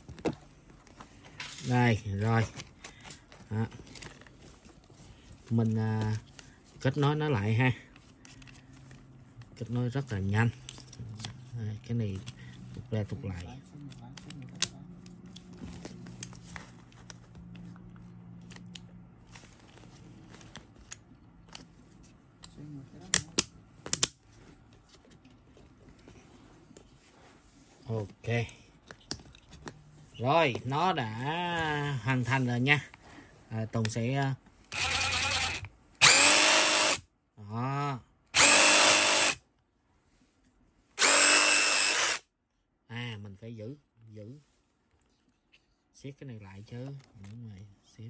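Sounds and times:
impact driver spinning freely: 0:34.7 - 0:37.0, 0:38.4 - 0:39.4, 0:41.0 - 0:42.2.

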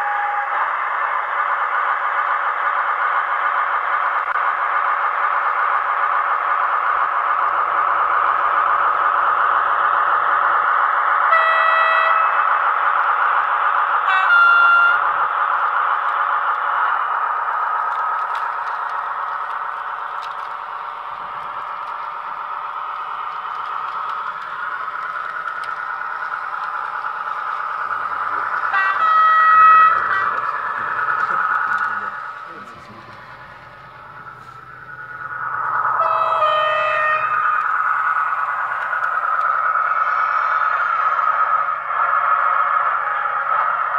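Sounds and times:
model train diesel engine sound: 0:00.0 - 0:43.9
train horn blasts: 0:11.3 - 0:12.4, 0:14.1 - 0:15.1, 0:28.7 - 0:30.7, 0:35.9 - 0:37.3.

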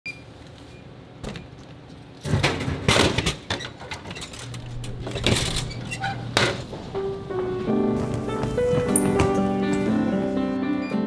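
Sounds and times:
vending machine humming: 0:03.8 - 0:08.3.

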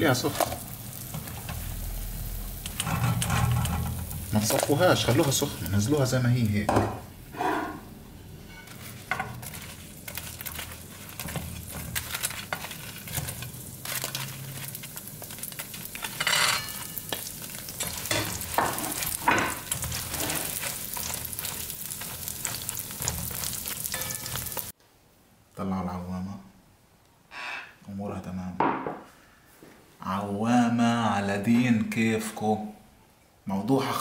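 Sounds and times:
dough sizzling in honey: 0:00.0 - 0:07.4, 0:08.2 - 0:24.8
spoon scraping a steel pan: 0:02.6 - 0:04.6, 0:07.3 - 0:14.6, 0:16.0 - 0:24.6.

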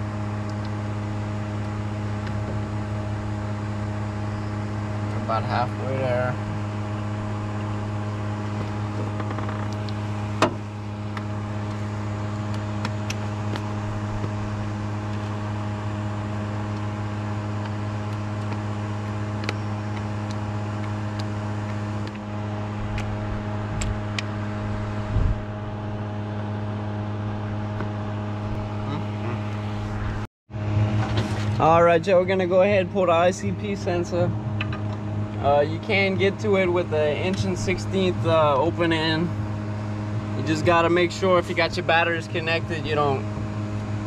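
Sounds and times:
low machine hum: 0:00.0 - 0:44.0
short thump: 0:10.4 - 0:10.7.

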